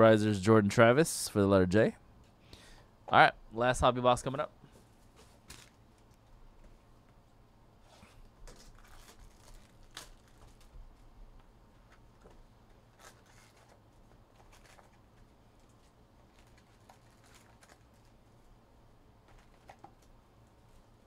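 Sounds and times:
packaging crinkling and tearing: 0:08.5 - 0:10.8, 0:12.9 - 0:18.2.

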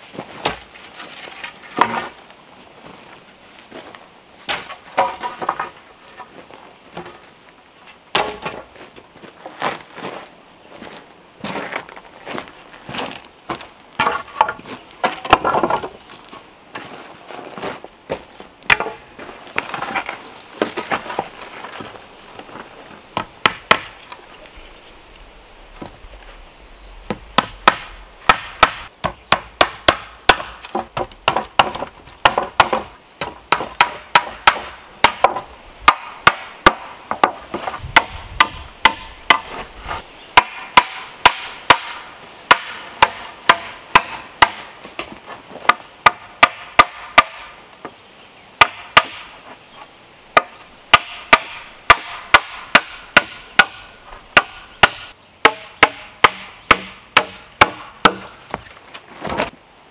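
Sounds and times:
hand tools striking wood and ground: 0:00.2 - 0:02.2, 0:04.4 - 0:06.3, 0:06.9 - 0:07.3, 0:08.1 - 0:08.9, 0:12.9 - 0:16.0, 0:17.6 - 0:22.0, 0:23.2 - 0:24.2, 0:27.1 - 0:48.0, 0:48.6 - 0:49.4, 0:50.4 - 0:59.6.

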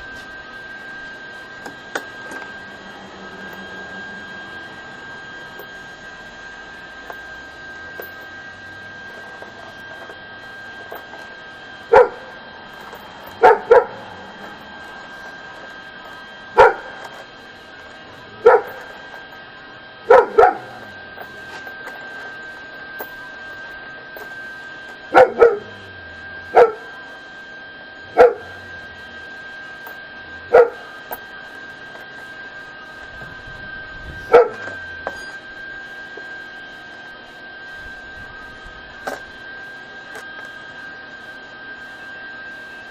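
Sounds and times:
steady high-pitched tone: 0:00.0 - 0:42.9
dog barking: 0:11.9 - 0:12.3, 0:13.4 - 0:14.0, 0:16.6 - 0:17.0, 0:18.4 - 0:18.8, 0:20.1 - 0:20.8, 0:25.2 - 0:25.8, 0:26.6 - 0:26.9, 0:28.2 - 0:28.6, 0:30.5 - 0:30.9, 0:34.3 - 0:34.7.

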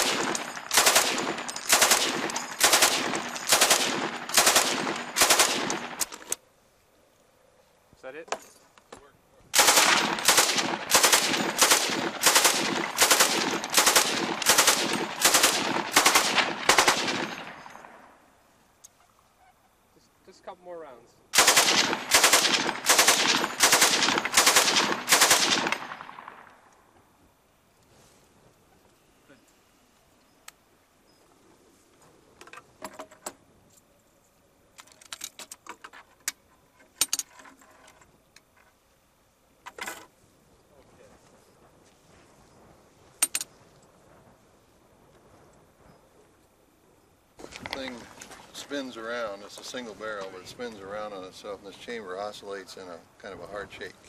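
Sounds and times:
machine gun automatic fire: 0:00.0 - 0:06.3, 0:09.5 - 0:18.0, 0:21.3 - 0:26.5.

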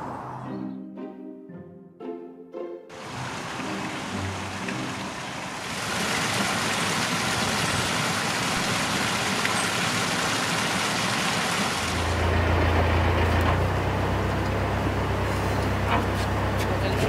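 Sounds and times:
boat engine humming: 0:02.9 - 0:17.0.

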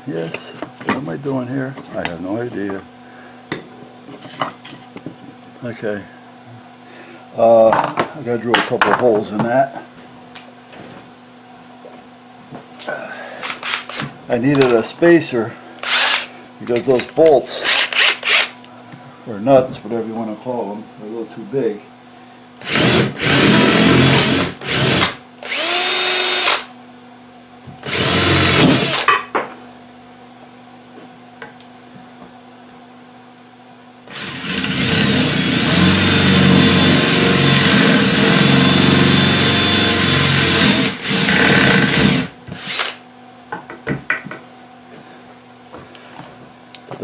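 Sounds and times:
electric drill whining: 0:15.8 - 0:16.3, 0:17.7 - 0:18.5, 0:22.6 - 0:26.7, 0:27.8 - 0:29.1, 0:34.1 - 0:43.0.

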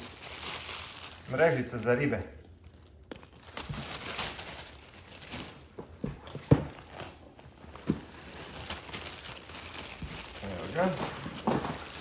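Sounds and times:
packaging rustling: 0:00.0 - 0:12.0.

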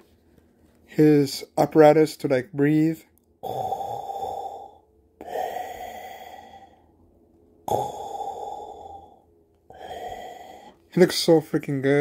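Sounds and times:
heavy hissing mechanical breathing: 0:03.4 - 0:06.9, 0:07.7 - 0:11.3.

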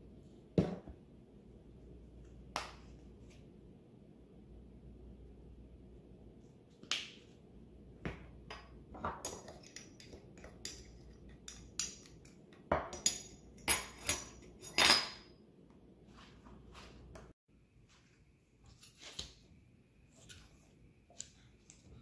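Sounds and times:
metal spoon clinking a dish: 0:08.5 - 0:15.3.

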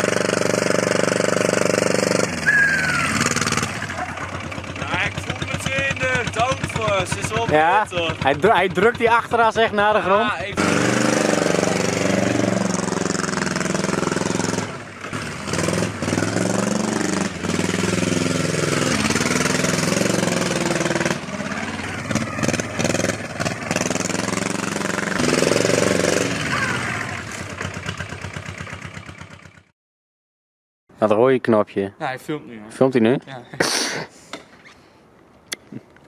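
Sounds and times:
small car engine revving: 0:00.0 - 0:08.9, 0:10.4 - 0:29.5.

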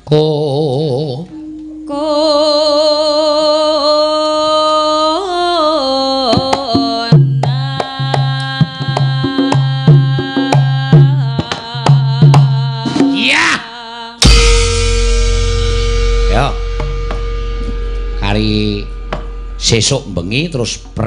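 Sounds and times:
woman singing with vibrato: 0:01.8 - 0:14.6
hand drum strokes: 0:14.2 - 0:21.0.

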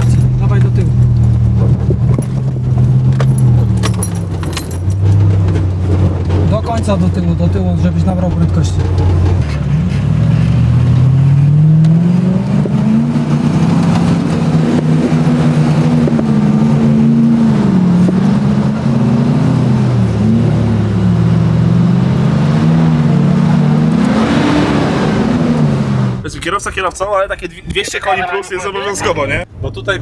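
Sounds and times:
off-road engine revving hard: 0:04.8 - 0:26.2.

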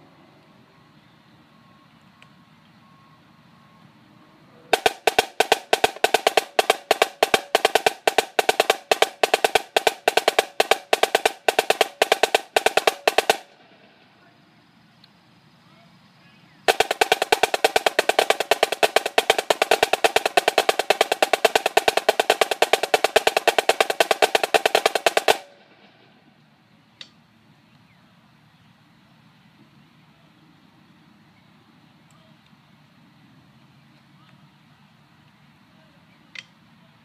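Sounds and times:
snare drum strokes: 0:04.7 - 0:13.6, 0:16.7 - 0:26.0.

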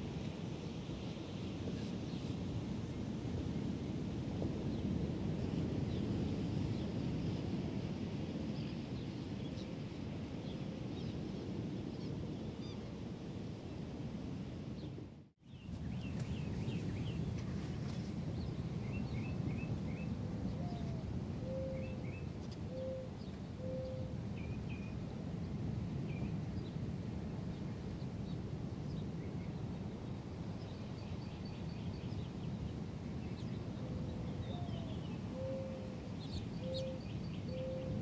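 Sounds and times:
bird cooing: 0:20.5 - 0:22.0, 0:22.7 - 0:24.1, 0:34.0 - 0:36.0, 0:36.6 - 0:38.0.

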